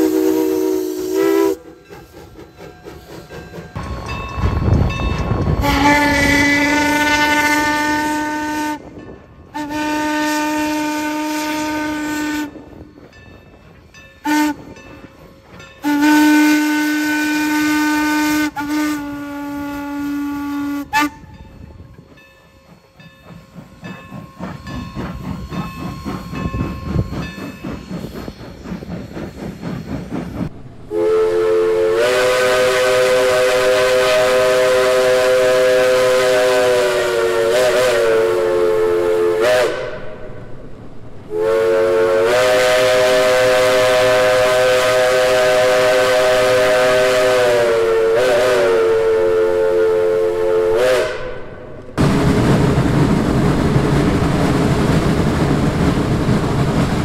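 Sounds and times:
steam locomotive whistle: 0.0s - 12.9s, 14.2s - 23.7s, 30.8s - 40.5s, 41.3s - 52.0s
steam engine exhaust chuffing: 22.5s - 40.2s.

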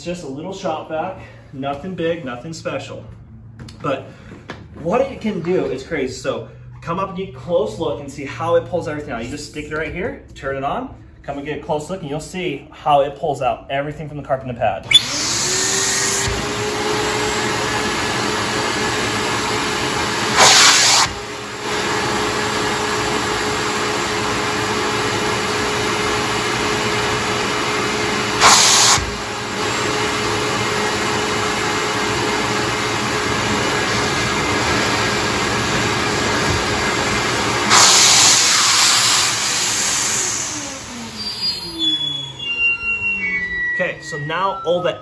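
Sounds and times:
shop vac whining: 14.7s - 45.0s.

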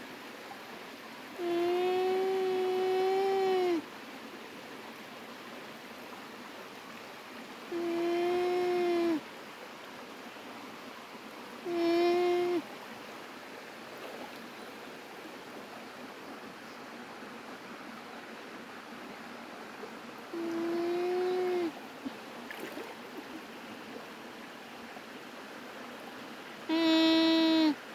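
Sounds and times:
background hiss: 0.0s - 27.9s
llama humming: 1.4s - 3.8s, 7.7s - 9.2s, 11.6s - 12.7s, 20.3s - 21.8s, 26.7s - 27.8s.

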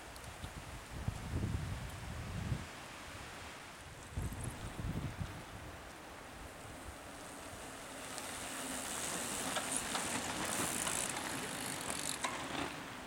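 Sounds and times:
bike tyres on dirt trail: 3.9s - 13.0s
bikes clicking and rattling: 6.8s - 13.0s.

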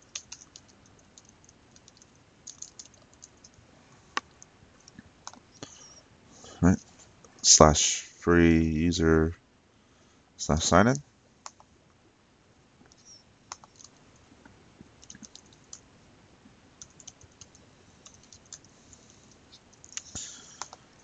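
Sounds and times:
typing on computer keyboard: 0.0s - 3.6s, 12.9s - 14.0s, 15.0s - 15.8s, 16.8s - 18.7s, 19.7s - 20.8s.

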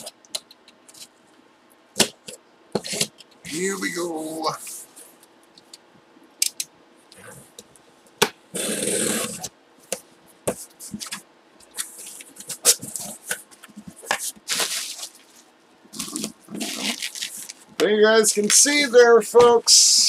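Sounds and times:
bubble wrap rustling: 11.8s - 17.8s
packing tape tearing: 14.2s - 15.3s, 16.0s - 17.6s.

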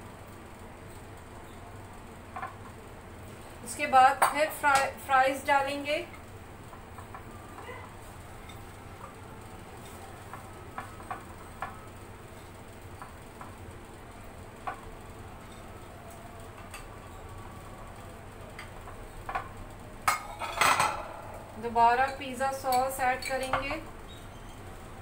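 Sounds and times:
dishes clattering: 19.3s - 23.8s.

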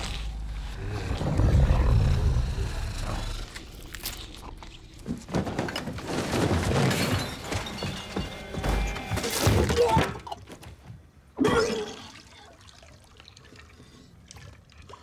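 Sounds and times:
knocks thuds and crashes: 5.0s - 10.2s.

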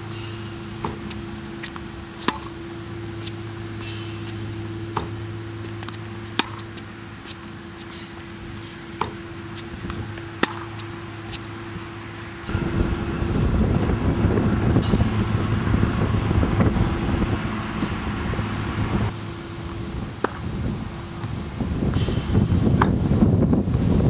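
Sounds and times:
steady low hum: 0.0s - 24.0s
racket hitting tennis ball: 0.2s - 2.6s, 3.2s - 12.6s.

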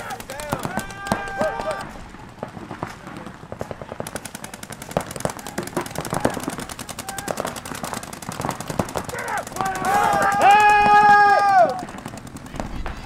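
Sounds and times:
paintball markers firing rapidly: 0.0s - 13.0s.

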